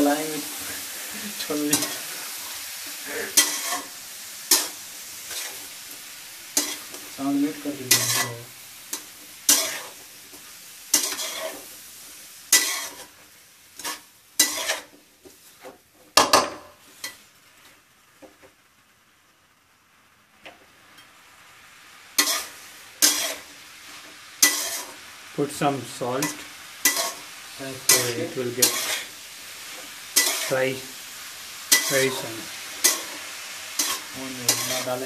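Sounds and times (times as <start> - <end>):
metal spatula scraping a pan: 0.0 - 5.6, 6.5 - 11.7, 12.5 - 13.2, 13.8 - 15.8, 22.2 - 25.0, 26.2 - 35.0
onions sizzling in hot oil: 0.0 - 35.0.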